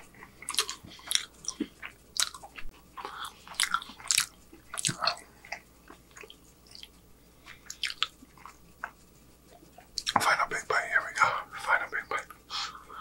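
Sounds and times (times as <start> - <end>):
man chewing with wet smacks: 0.0 - 10.2.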